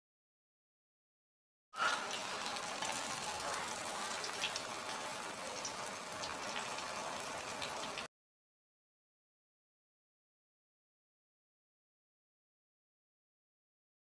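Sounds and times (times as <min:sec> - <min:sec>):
hot oil sizzling and crackling: 0:01.8 - 0:08.1.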